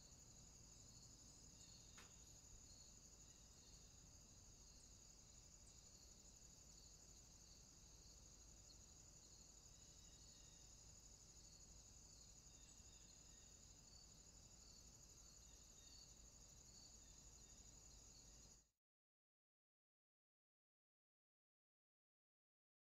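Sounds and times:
insects buzzing: 0.0 - 18.6.

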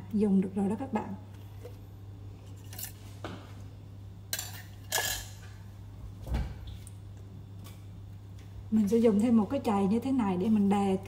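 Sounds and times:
steady low hum: 0.0 - 11.0
dishes and utensils clinking: 4.3 - 5.6.

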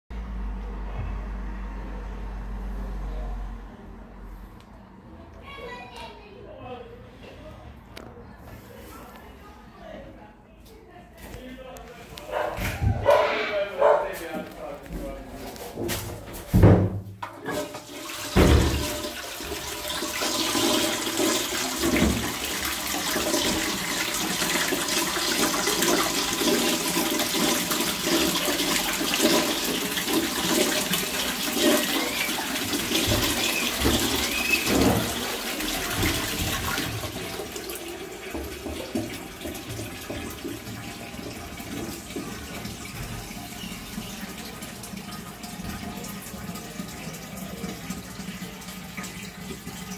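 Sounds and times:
water rushing through toilet bowl: 17.2 - 49.9.

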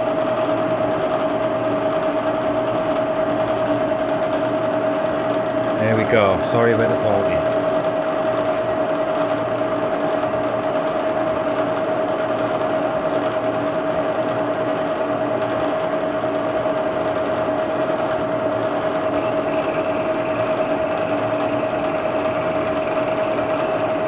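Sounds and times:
milling machine cutting metal: 19.1 - 24.0.

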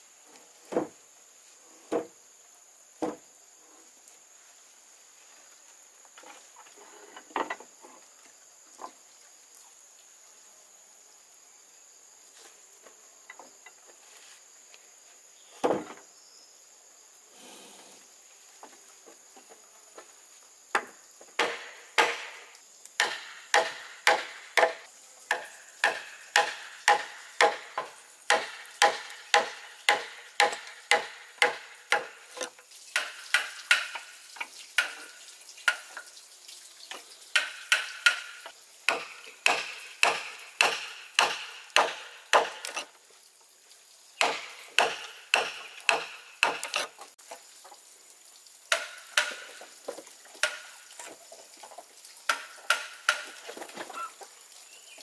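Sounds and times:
hand tool striking wood: 20.7 - 34.1, 34.8 - 35.9, 37.3 - 42.9, 44.2 - 47.1, 48.7 - 51.1, 52.3 - 53.7.

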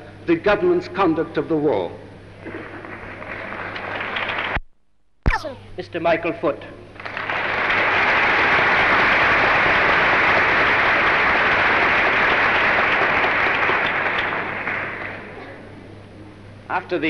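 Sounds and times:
large audience applauding: 2.5 - 4.6, 7.0 - 15.4.

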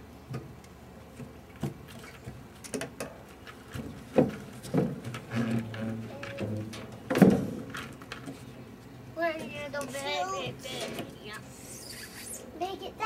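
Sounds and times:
knocks and thumps on wooden deck: 3.8 - 5.8.

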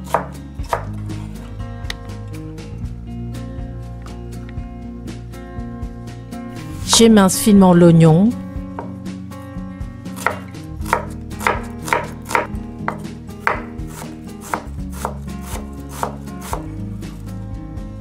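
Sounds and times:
knife slicing onion on board: 0.0 - 1.4, 10.1 - 16.8
soft background music: 0.0 - 18.0.

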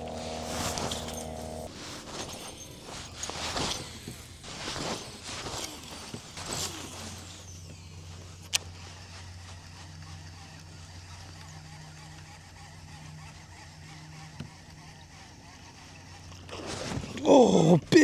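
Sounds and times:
fishing reel whirring and knocks: 0.0 - 17.1
steady low hum: 0.0 - 17.9.

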